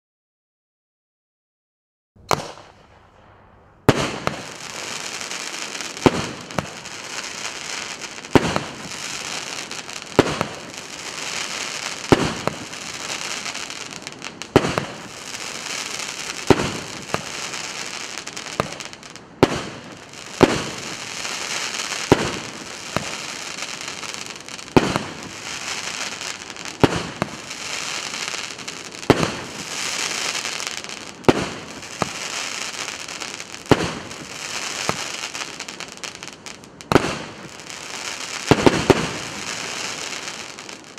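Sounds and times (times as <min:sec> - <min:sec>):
firework bangs: 0:02.2 - 0:40.9
hissing crackle of burning stars: 0:02.4 - 0:40.9.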